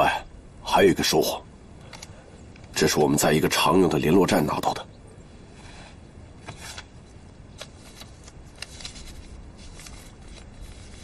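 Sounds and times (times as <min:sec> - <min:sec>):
low steady background hiss: 0:00.0 - 0:11.0
paper rustling and crinkling: 0:06.4 - 0:11.0.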